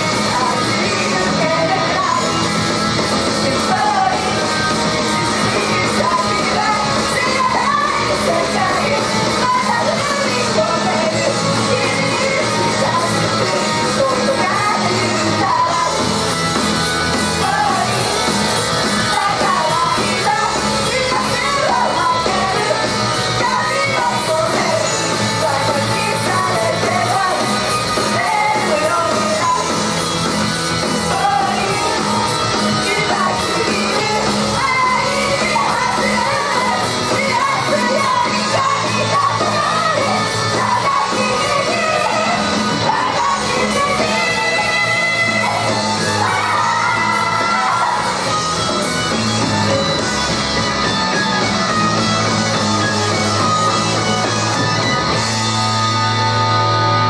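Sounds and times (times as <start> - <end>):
women singing into microphones: 0.0 - 2.5, 3.3 - 16.1, 17.2 - 18.2, 18.9 - 29.9, 31.0 - 48.4
pop-rock song through speakers: 0.0 - 57.0
shouted vocals: 32.9 - 48.4.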